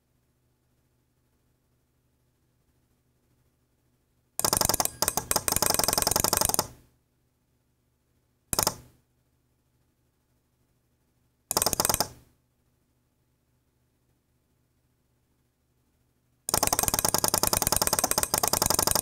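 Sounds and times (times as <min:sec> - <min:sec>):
relay modules clicking rapidly: 0:04.4 - 0:06.7, 0:16.5 - 0:19.0.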